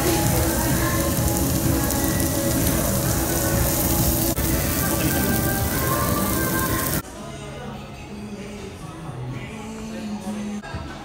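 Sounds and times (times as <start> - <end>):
meat sizzling on grill: 0.0 - 7.0
faint music: 0.0 - 11.0.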